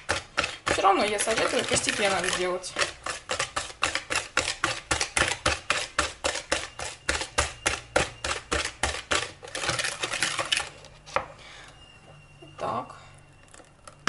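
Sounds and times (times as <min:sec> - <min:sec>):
whisk clinking against bowl: 0:00.0 - 0:10.6.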